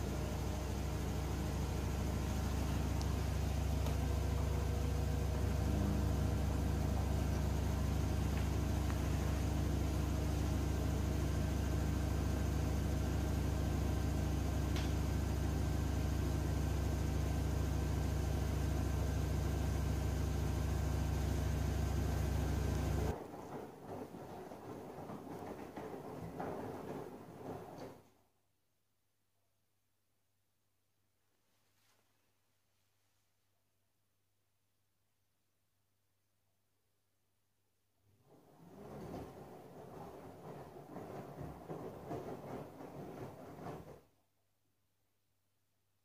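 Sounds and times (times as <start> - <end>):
washing machine spinning: 0.0 - 28.3, 38.2 - 44.3.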